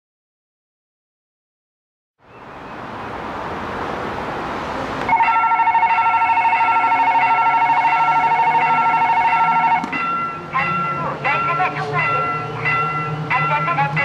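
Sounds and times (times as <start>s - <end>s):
steady background noise: 2.2s - 14.0s
level crossing bell ringing: 5.1s - 14.0s.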